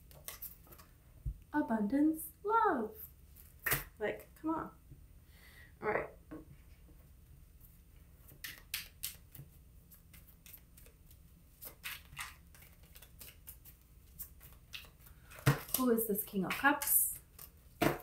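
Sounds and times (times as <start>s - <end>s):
cards being shuffled: 8.3s - 18.0s.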